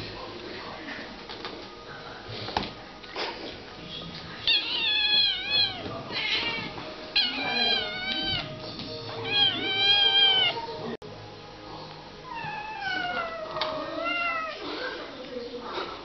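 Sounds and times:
kitten meowing: 4.5 - 8.4, 9.2 - 10.6.

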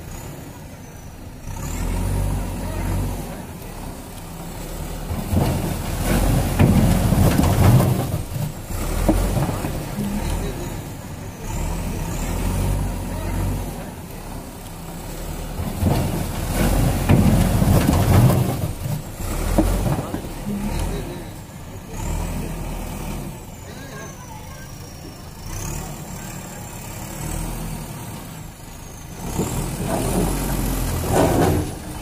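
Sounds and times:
diesel engine revving under load: 0.0 - 32.0.

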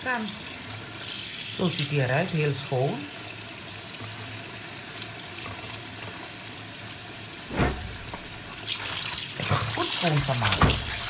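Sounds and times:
loud splash or knock: 7.5 - 8.6
tap running into metal sink: 9.4 - 11.0.

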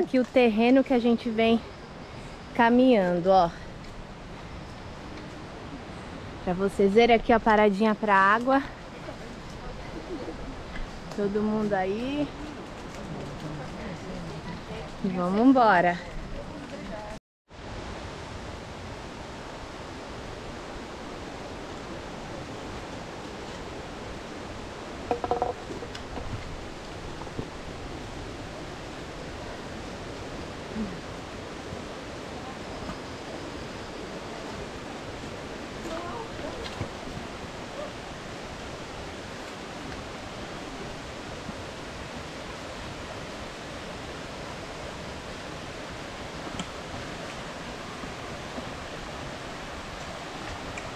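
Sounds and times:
stream water rushing: 17.6 - 50.9.

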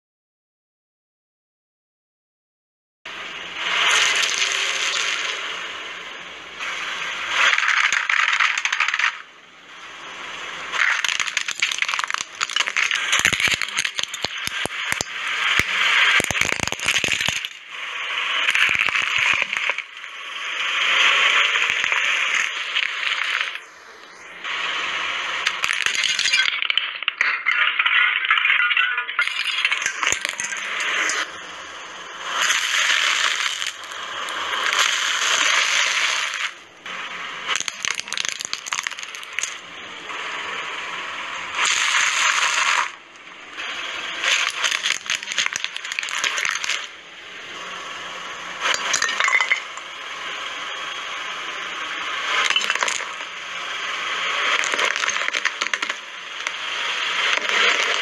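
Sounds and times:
brittle pieces snapping: 10.8 - 17.6, 18.5 - 20.0, 25.5 - 26.9, 37.6 - 39.6, 44.2 - 46.9, 52.4 - 53.1, 54.5 - 56.0.

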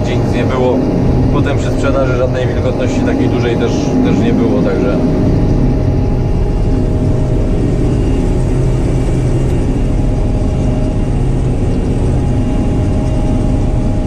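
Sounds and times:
combine harvester engine roar: 0.0 - 14.0.

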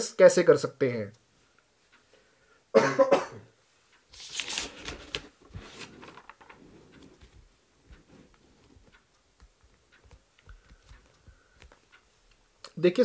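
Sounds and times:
person coughing: 2.7 - 3.5
small clicks of pages: 3.9 - 12.4
paper pages rustling: 4.1 - 9.0.

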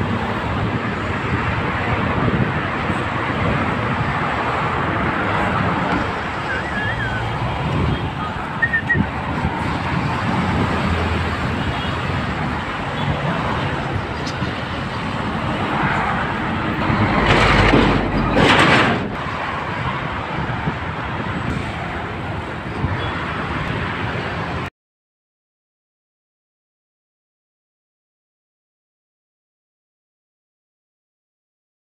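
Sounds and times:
highway traffic noise: 0.0 - 24.7
vehicles passing close by: 0.0 - 24.7.

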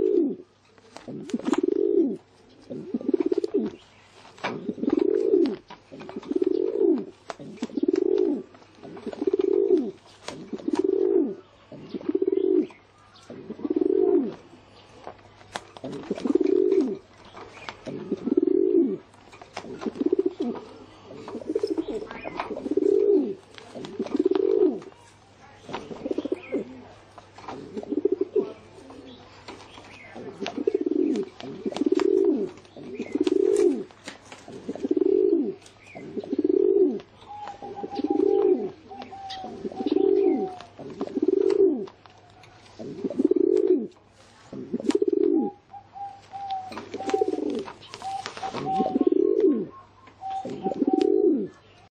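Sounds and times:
pigeon cooing: 0.0 - 3.8, 4.4 - 25.0, 25.7 - 51.6.

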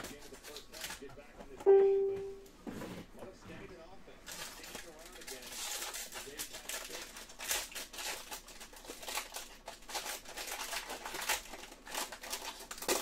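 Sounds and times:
foil wrapper crinkling and tearing: 0.0 - 1.1, 4.2 - 13.0.

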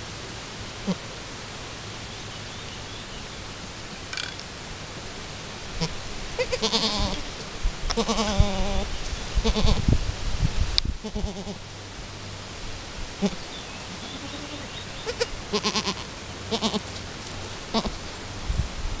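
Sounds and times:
goats bleating: 5.8 - 7.3, 7.9 - 9.8, 11.0 - 11.6, 13.2 - 16.9, 17.7 - 18.0.

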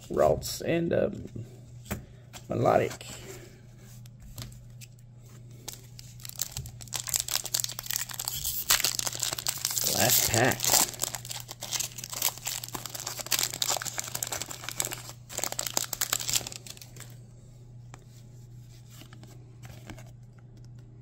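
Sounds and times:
foil wrapper crinkling: 5.6 - 17.2
cards being handled: 5.7 - 17.1, 17.9 - 20.8.

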